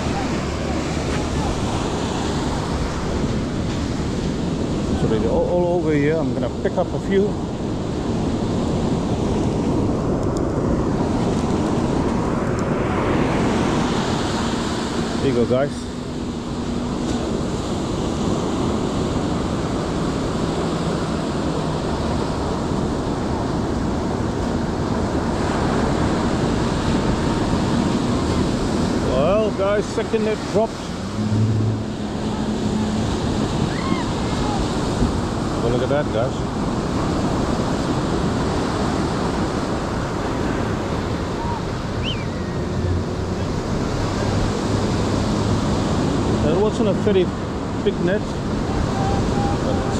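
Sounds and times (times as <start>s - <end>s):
surf washing onto beach: 0.0s - 49.9s
wind buffeting microphone: 0.0s - 49.9s
short high chirp: 42.0s - 42.6s.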